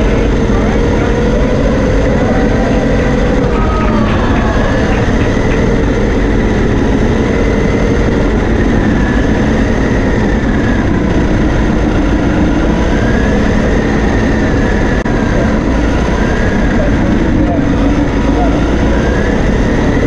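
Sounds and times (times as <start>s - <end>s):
electric motor and gears whining: 0.0s - 20.0s.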